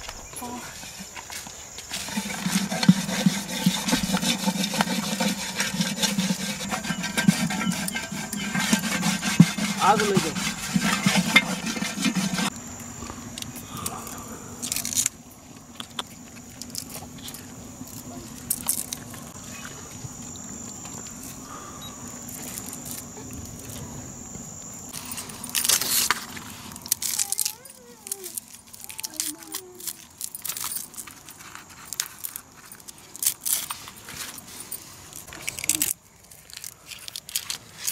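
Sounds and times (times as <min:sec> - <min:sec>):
pot scrubbing: 0:01.9 - 0:12.5.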